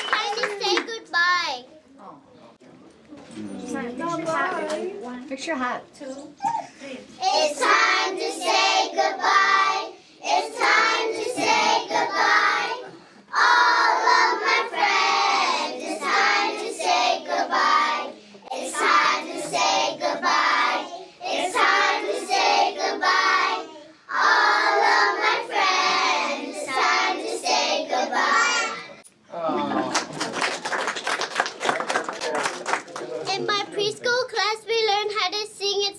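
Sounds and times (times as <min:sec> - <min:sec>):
children singing: 0:07.2 - 0:29.0.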